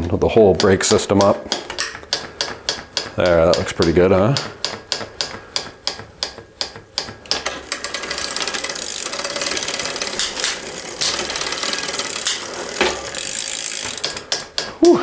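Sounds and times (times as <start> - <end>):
bicycle drivetrain clicks: 0.3 - 15.0
bicycle chain rattling: 7.3 - 14.8.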